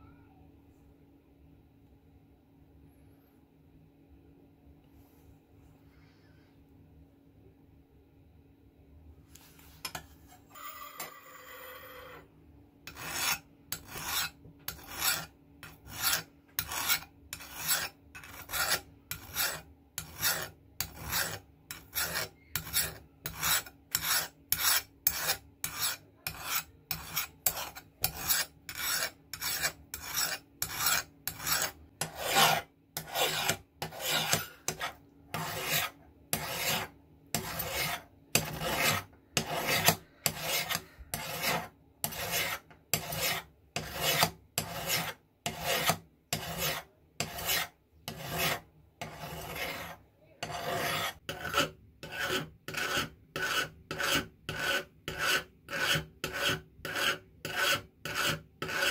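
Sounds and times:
file rasping on steel blade: 12.9s - 58.9s.

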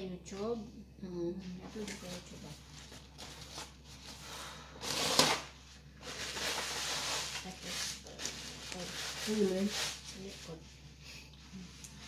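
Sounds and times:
plastic bag rustling and crinkling: 1.6s - 10.6s.

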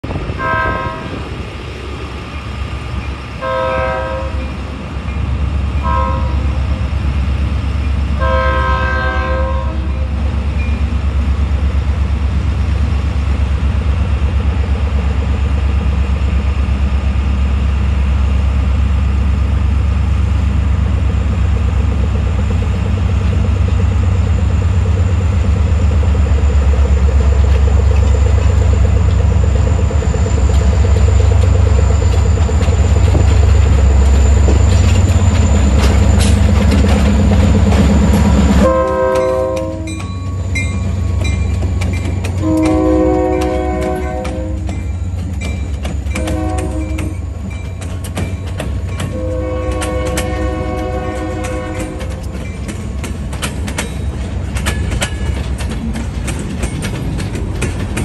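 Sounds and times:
locomotive horn blasts: 0.4s - 1.2s, 3.4s - 4.6s, 5.8s - 6.6s, 8.2s - 10.1s, 38.6s - 40.1s, 42.4s - 44.9s, 46.1s - 47.3s, 49.0s - 52.2s
diesel engines rumbling: 10.1s - 58.0s.

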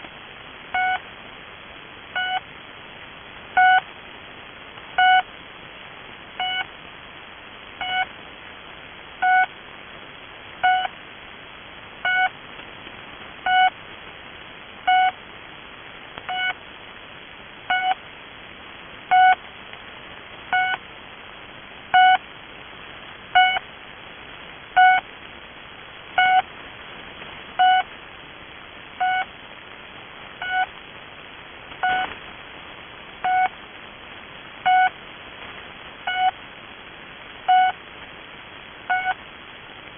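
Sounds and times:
radio hiss: 0.0s - 39.9s
short radio beep: 31.8s - 32.1s.

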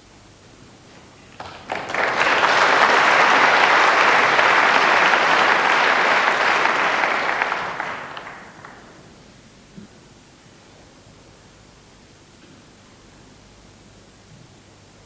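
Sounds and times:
audience applause: 1.3s - 9.1s.

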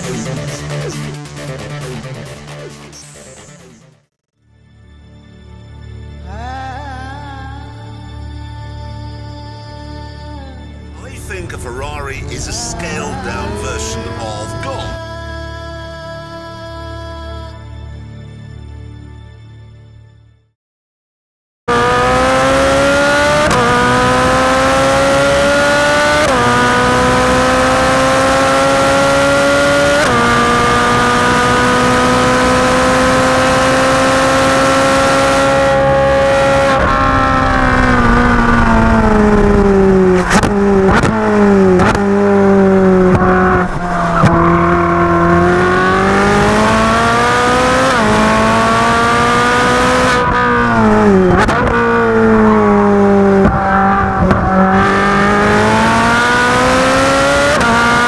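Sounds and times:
sports car engine at full throttle: 0.0s - 3.8s, 11.0s - 15.0s, 21.7s - 58.0s
exhaust cracks on downshifts: 39.3s - 42.3s.

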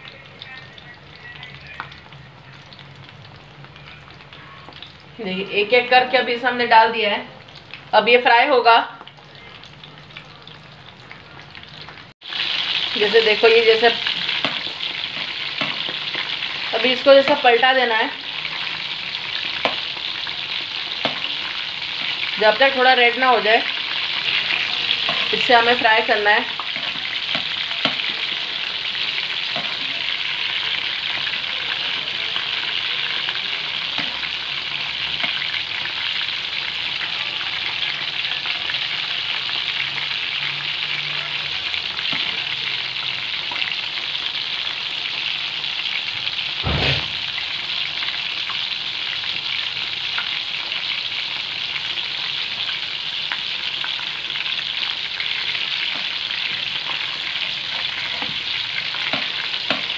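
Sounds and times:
deep-frying sizzle with crackles: 0.0s - 59.9s
sharp knock: 46.6s - 47.2s.

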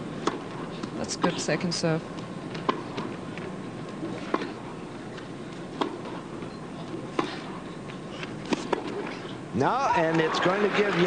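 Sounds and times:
tennis ball struck by racket: 0.2s - 0.6s, 2.5s - 3.1s, 4.1s - 4.6s, 5.7s - 6.2s, 7.1s - 7.6s, 8.4s - 9.1s.

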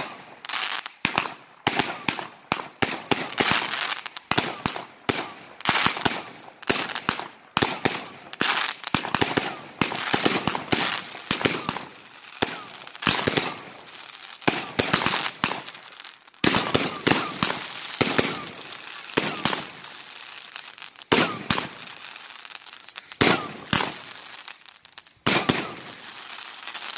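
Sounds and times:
fireworks bangs: 0.0s - 26.9s
fireworks crackling: 0.0s - 26.9s.

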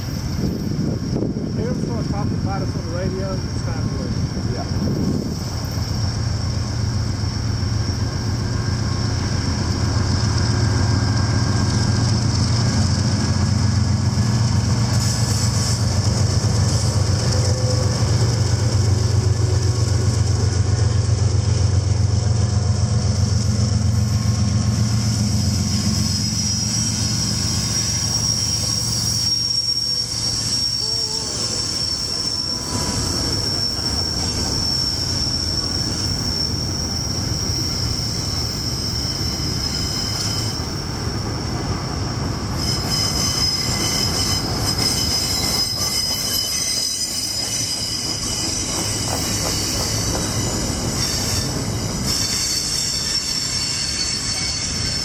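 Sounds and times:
diesel locomotive drone: 0.0s - 55.0s
train wheels squealing: 0.0s - 55.0s.

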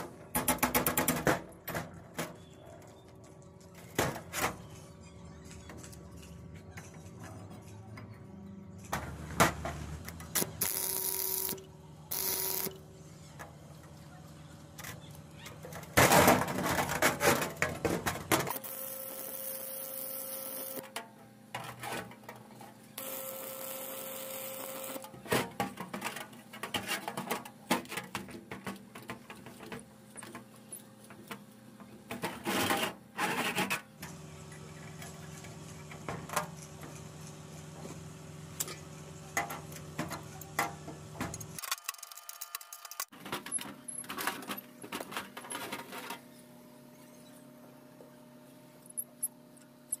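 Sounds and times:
welding arc crackling: 10.3s - 12.8s, 18.5s - 20.8s, 23.0s - 25.1s.

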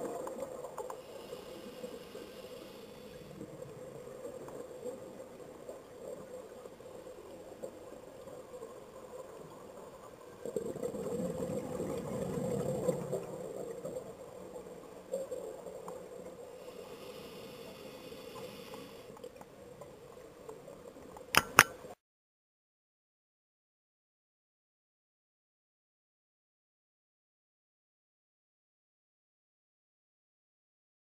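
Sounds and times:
underwater hum: 0.0s - 22.0s
sharp clicks: 21.4s - 21.8s.

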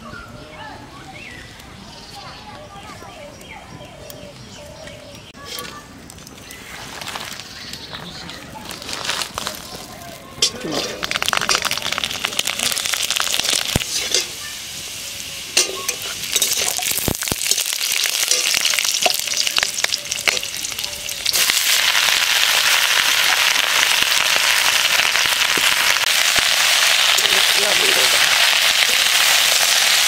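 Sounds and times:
food sizzling in hot oil: 10.4s - 30.0s.

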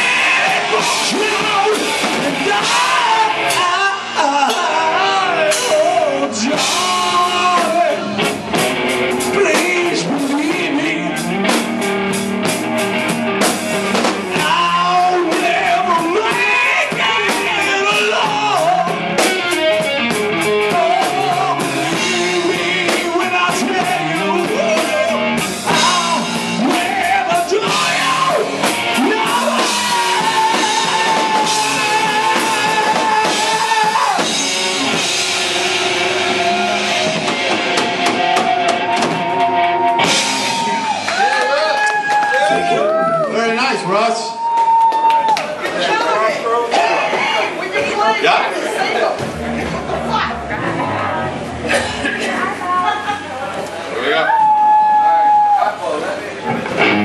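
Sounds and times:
man singing: 0.0s - 8.3s, 9.2s - 11.6s, 14.3s - 35.1s
drum kit: 0.0s - 43.1s, 49.1s - 53.2s, 56.4s - 57.0s
electric guitar: 0.0s - 43.3s, 48.8s - 55.6s, 56.4s - 57.0s
bass guitar: 0.0s - 57.0s.

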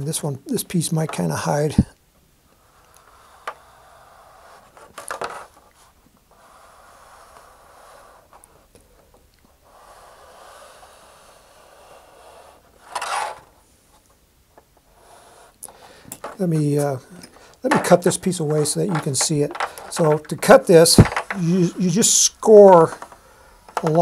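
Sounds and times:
pencil scratching on plastic: 2.6s - 8.7s, 9.5s - 13.5s, 14.9s - 15.6s.

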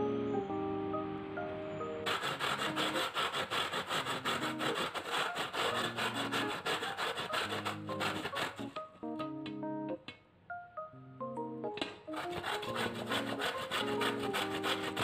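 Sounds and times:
potato grating on grater: 2.1s - 8.8s, 12.2s - 15.0s.

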